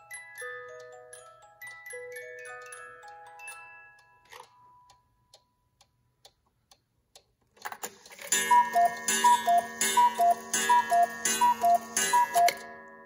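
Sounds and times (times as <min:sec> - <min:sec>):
clock ticking: 0:00.1 - 0:12.9
clock mechanism clatter: 0:07.6 - 0:12.8
cuckoo clock calls: 0:08.3 - 0:12.8.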